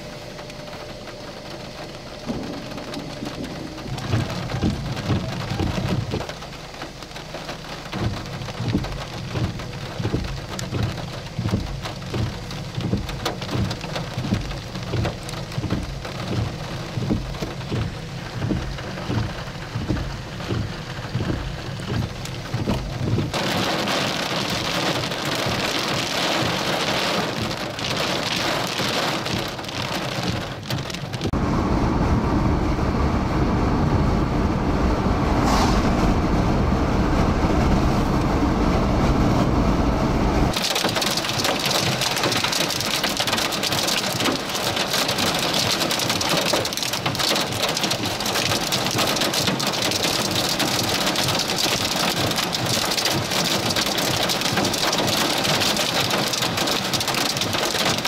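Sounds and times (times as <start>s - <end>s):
rain falling: 0.0s - 58.0s
low thumps: 1.9s - 6.4s, 7.9s - 40.6s.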